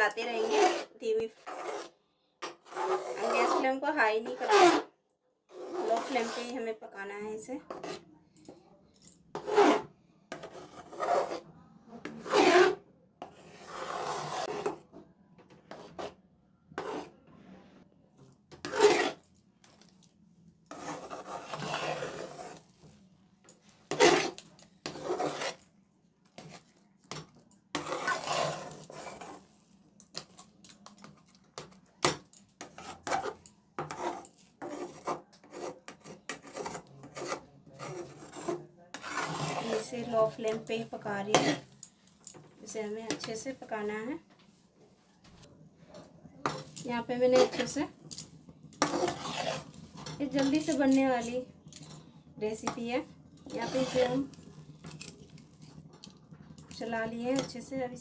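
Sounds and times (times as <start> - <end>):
spatula scraping metal pan: 0.0 - 4.9, 5.5 - 6.8, 7.7 - 8.0, 9.3 - 14.8, 16.8 - 17.2, 18.5 - 19.3, 20.7 - 22.8, 23.8 - 25.7, 26.4 - 29.6, 32.6 - 41.8, 46.4 - 48.0, 48.8 - 55.9.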